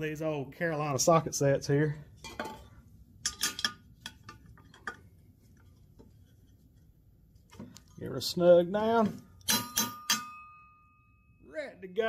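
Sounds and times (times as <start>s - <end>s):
wrench clinking on metal: 9.4s - 10.7s.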